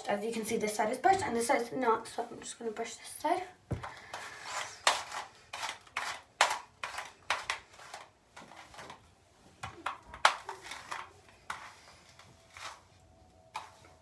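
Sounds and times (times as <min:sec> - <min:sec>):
hairbrush swishing through hair: 0:04.2 - 0:06.2, 0:10.5 - 0:14.0.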